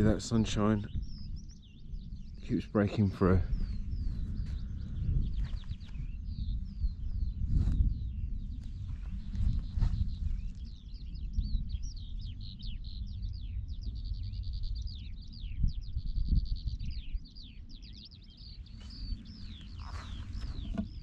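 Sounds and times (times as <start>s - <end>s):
wind buffeting microphone: 0.0s - 21.0s
songbird warbling: 18.2s - 21.0s.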